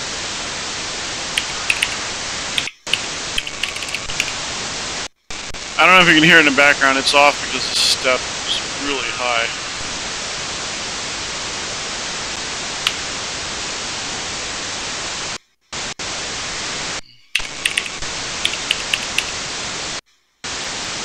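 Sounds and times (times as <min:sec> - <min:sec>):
radio static hiss: 0:00.0 - 0:21.0
short clicks: 0:01.4 - 0:02.0, 0:02.6 - 0:04.4, 0:17.4 - 0:19.4.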